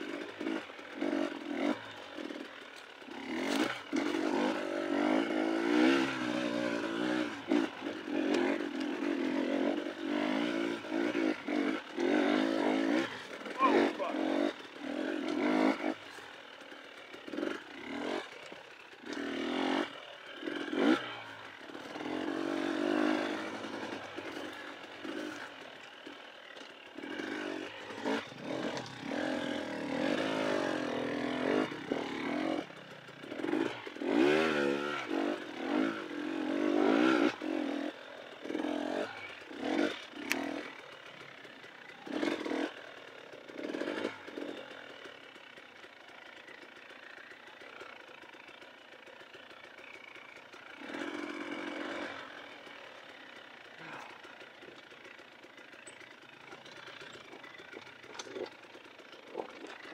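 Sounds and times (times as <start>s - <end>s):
dirt bike engine revving: 0.0s - 48.8s, 49.4s - 59.9s
bike clattering on rough ground: 56.6s - 58.7s.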